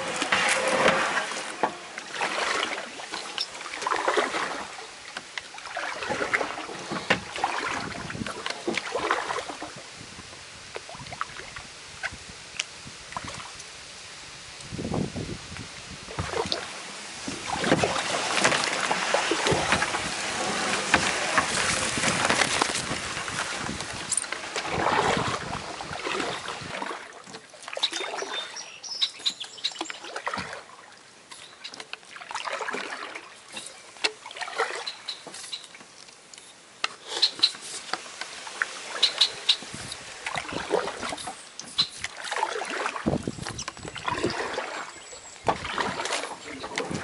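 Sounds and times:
reeds scraping along hull: 0.0 - 5.0, 16.1 - 47.0
water dripping and splashing: 0.0 - 9.8, 15.5 - 47.0
paddle strokes: 0.0 - 9.9, 15.6 - 47.0.

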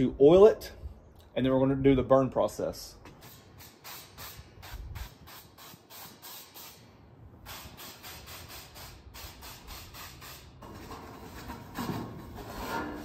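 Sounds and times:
spray bottle spritzing: 3.2 - 10.6.

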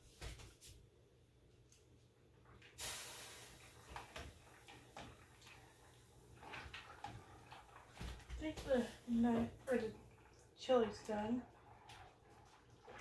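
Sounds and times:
short hiss: 2.8 - 4.1.

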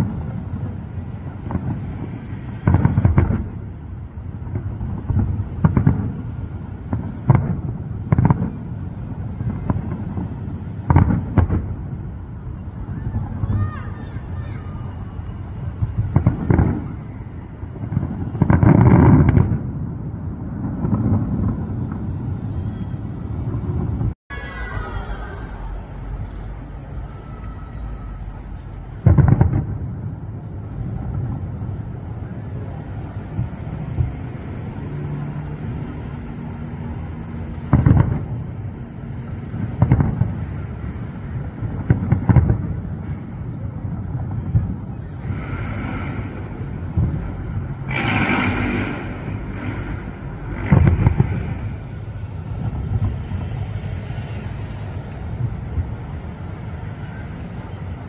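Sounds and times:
continuous low rumble: 0.0 - 58.0
distant fireworks booms: 0.0 - 58.0
fireworks crackling fizz: 37.4 - 57.0.

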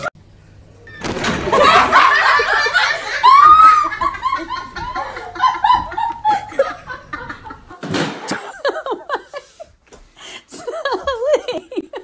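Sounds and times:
high-pitched laughing: 1.5 - 7.7.

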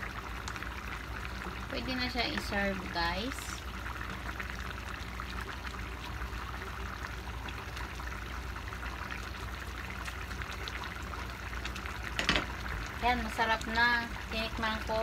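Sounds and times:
stew bubbling and popping: 0.0 - 15.0.

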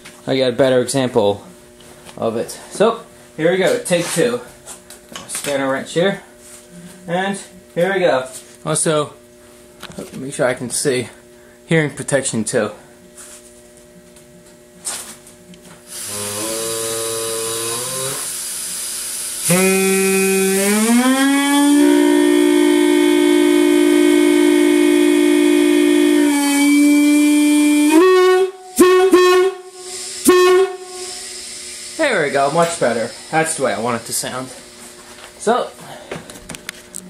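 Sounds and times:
air hiss: 15.9 - 34.9
air horn note: 16.0 - 18.3, 19.4 - 31.4
short air horn blasts: 16.0 - 18.3, 19.4 - 31.3.

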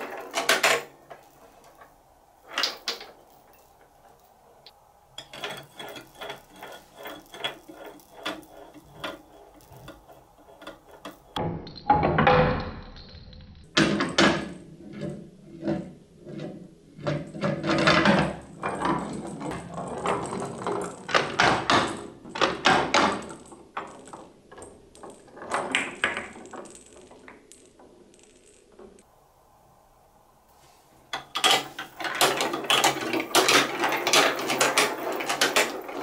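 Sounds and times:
plastic balls rattling in marble run: 0.0 - 4.4, 5.2 - 11.4, 17.0 - 29.0, 31.1 - 36.0.

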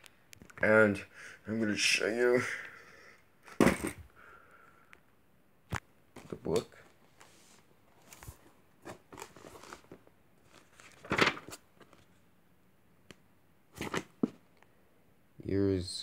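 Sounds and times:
paper pages rustling: 6.2 - 12.2, 13.8 - 14.4.

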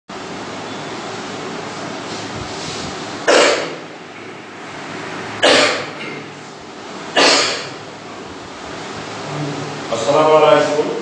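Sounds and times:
steady background hiss: 0.2 - 11.0
man coughing: 3.3 - 3.8, 5.4 - 6.3, 7.2 - 7.8.

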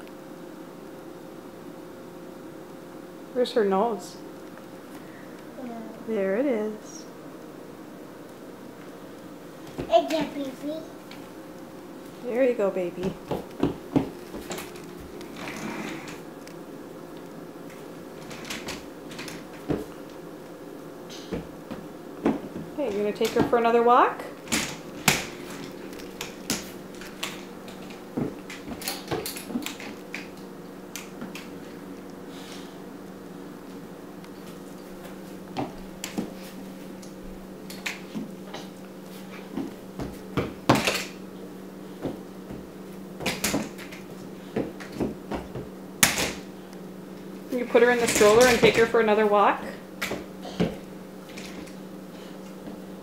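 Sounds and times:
steady low hum: 0.0 - 53.0
toy stroller rattling and knocking: 47.8 - 49.0.

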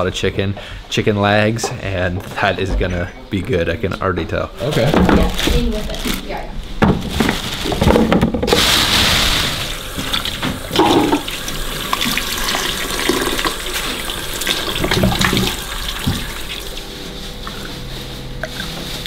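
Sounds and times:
tap water running into bowl: 9.9 - 16.6
vegetables knocking against bowl: 10.4 - 11.3
hands rubbing onions: 15.7 - 19.0.

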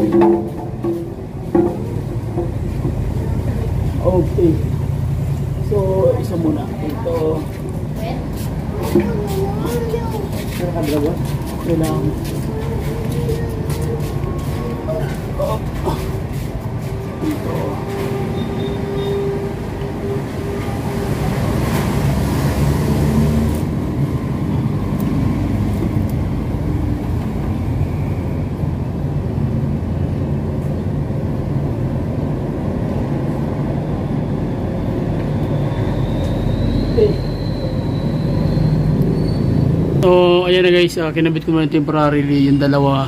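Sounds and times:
low mechanical rumble: 0.0 - 10.2.

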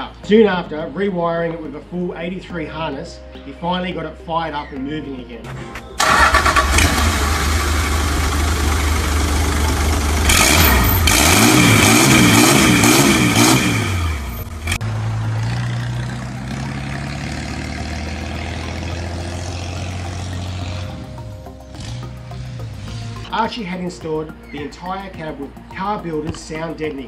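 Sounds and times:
diesel engine revving and idling: 6.0 - 23.4.

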